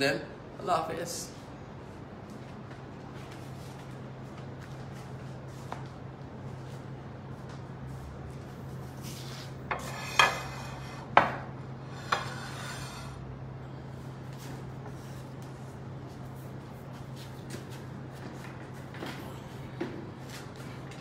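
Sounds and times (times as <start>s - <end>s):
steady low hum: 0.0s - 21.0s.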